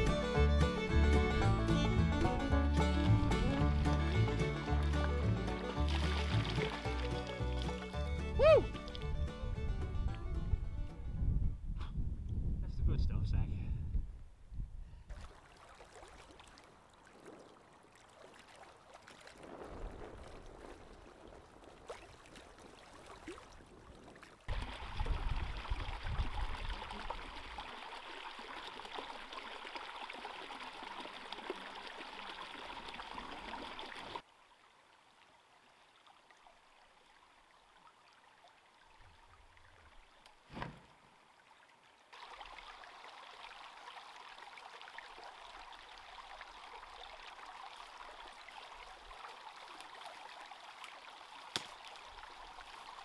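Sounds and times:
brook trickling: 0.0s - 10.5s, 15.0s - 53.0s
brook pouring over stone ledge: 3.4s - 8.0s, 15.1s - 34.2s, 42.1s - 53.0s
dull thump: 40.5s - 41.0s.

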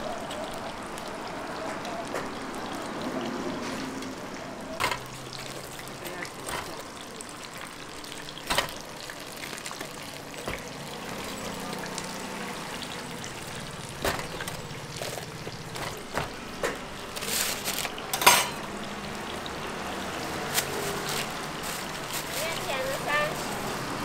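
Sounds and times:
deep-frying sizzle: 0.0s - 24.0s
paper bag crinkling: 17.0s - 18.1s, 20.4s - 23.5s
tongs clacking on metal rack: 17.2s - 18.6s.

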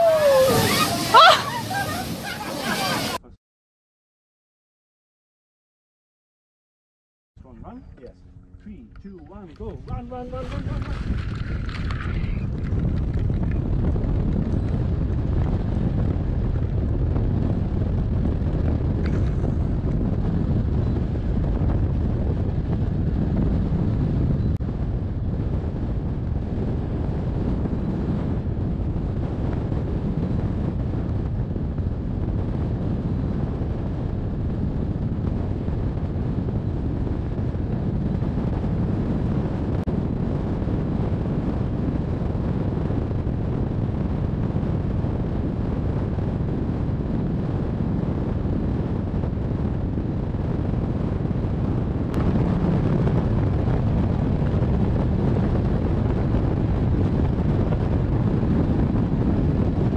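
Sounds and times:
wind rushing over microphone: 0.0s - 3.3s, 7.4s - 59.9s.

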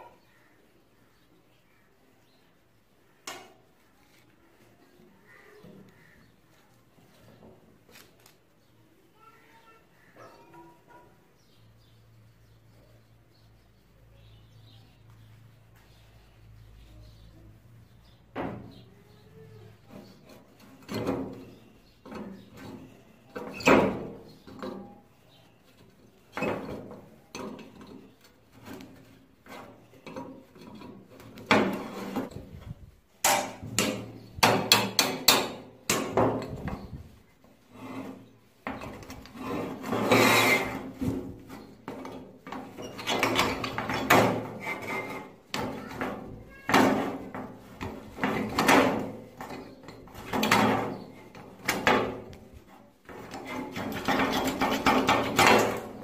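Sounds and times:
metal knocks clinks and scrapes: 37.7s - 52.4s, 53.1s - 56.0s.

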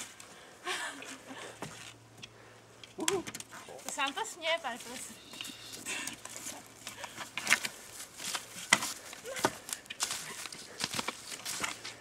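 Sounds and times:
skis and poles clattering: 2.8s - 12.0s
rustling on forest floor: 3.4s - 12.0s.

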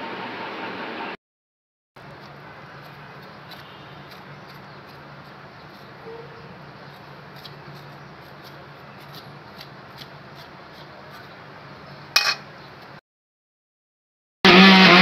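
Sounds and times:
metal spoon clinking on bowl: 12.2s - 12.5s.

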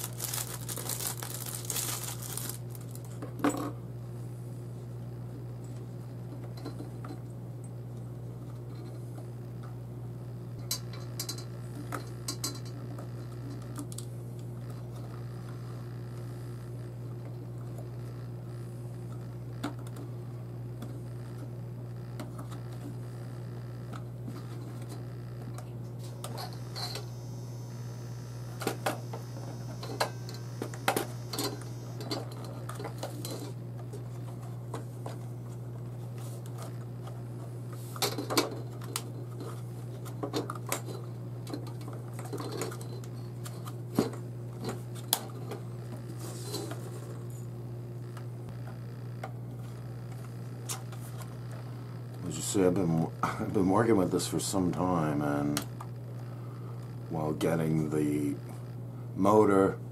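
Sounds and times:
low hum: 10.6s - 33.6s.

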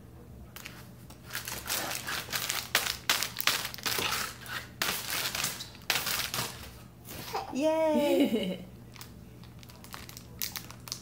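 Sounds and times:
plastic bag crinkling: 0.6s - 6.7s, 8.9s - 11.0s.

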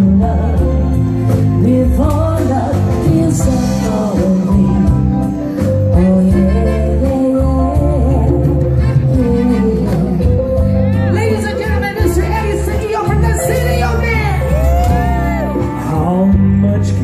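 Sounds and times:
live band playing: 0.0s - 17.0s
steady bass line: 0.0s - 17.0s
woman singing into microphone: 0.0s - 17.0s.

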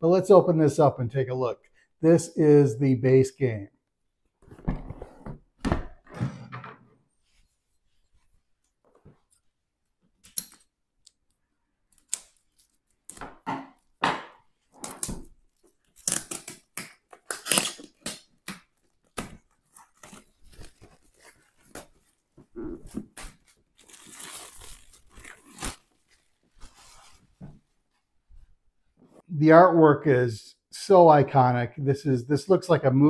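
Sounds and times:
plastic wrap crackling and tearing: 14.7s - 27.0s.

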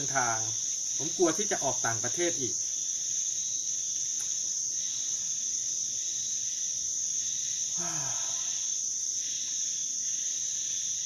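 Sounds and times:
insect chorus droning: 0.0s - 11.0s
short falling vocal sound: 7.8s - 8.4s.

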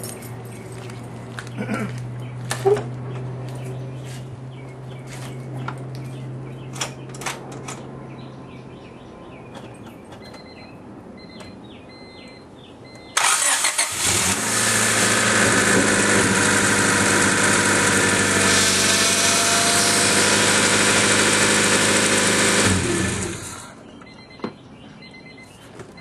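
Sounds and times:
car engine idling: 13.1s - 23.7s
starter cranking engine: 13.2s - 23.7s.

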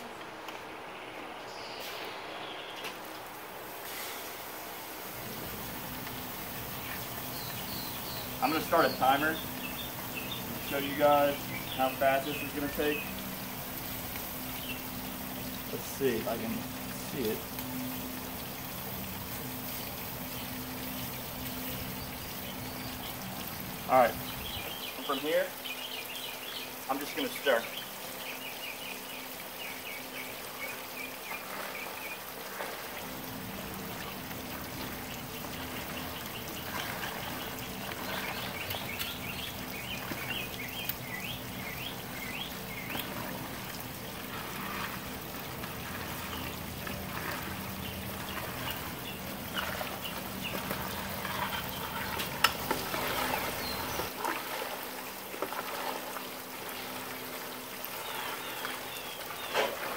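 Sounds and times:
birds chirping: 0.0s - 59.9s
low steady hum: 3.1s - 24.9s, 27.7s - 59.9s
liquid sloshing in pot: 30.7s - 59.9s.

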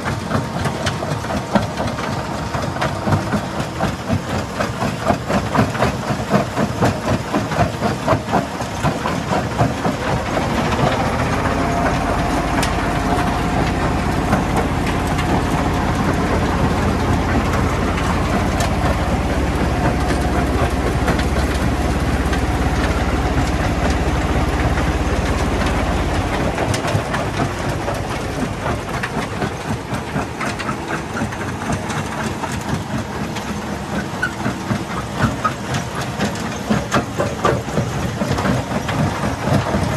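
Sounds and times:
heavy low rumble: 9.5s - 33.4s.

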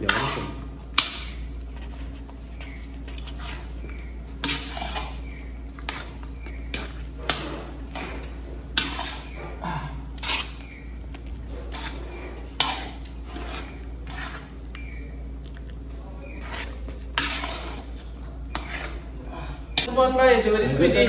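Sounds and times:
metal pots and utensils clinking: 11.7s - 14.4s, 16.4s - 19.0s.

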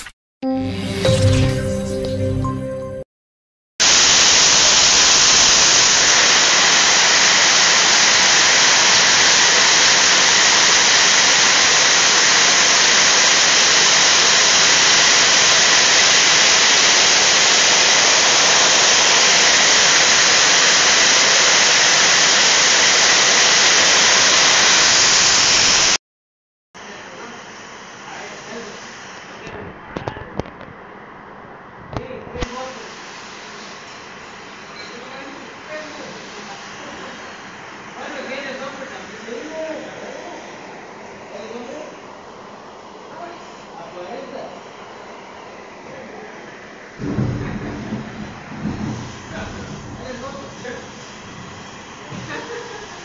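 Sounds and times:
heavy rain on metal roof: 47.0s - 53.0s.

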